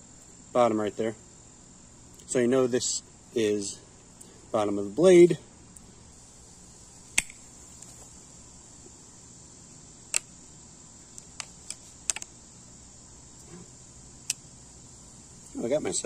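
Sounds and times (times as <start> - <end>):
high insect buzz: 0.0 - 16.0.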